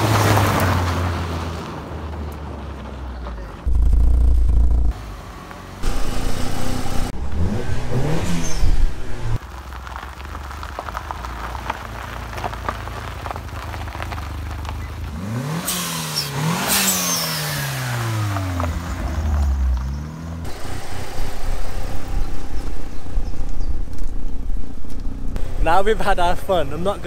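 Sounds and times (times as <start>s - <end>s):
car engine revving: 3.6s - 10.0s, 15.0s - 26.8s.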